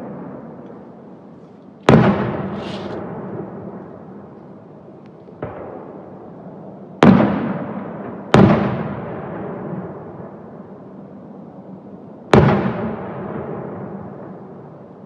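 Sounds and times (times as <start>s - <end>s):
firework shells bursting: 1.9s - 3.1s.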